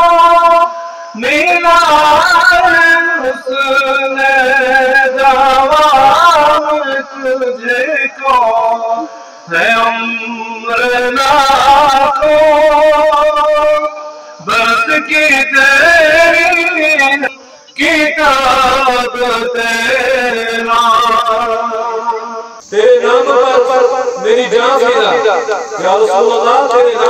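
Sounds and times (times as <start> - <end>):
man singing unaccompanied: 0.0 - 27.0.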